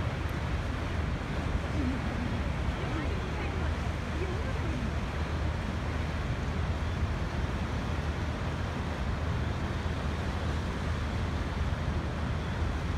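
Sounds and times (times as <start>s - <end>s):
waterfall rushing: 0.0s - 6.8s.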